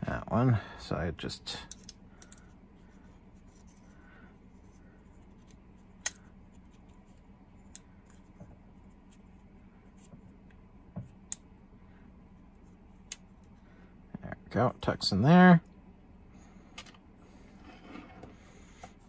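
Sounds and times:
steady low hum: 0.0s - 19.0s
light scrapes: 17.4s - 18.5s.

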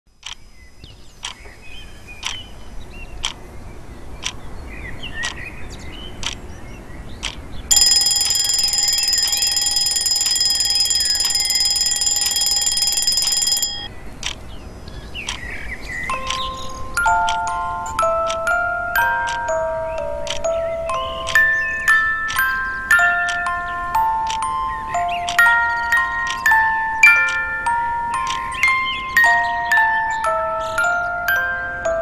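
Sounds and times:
clock ticking: 7.2s - 14.4s, 16.1s - 32.0s
alarm clock bell ringing: 7.7s - 13.9s, 16.1s - 32.0s.

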